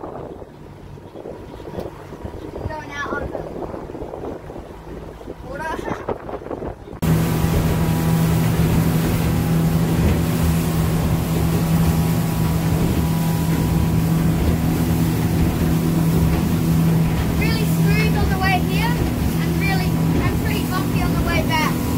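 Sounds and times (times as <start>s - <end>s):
motorboat engine humming: 0.0s - 21.9s
wind and water rushing: 0.0s - 21.9s.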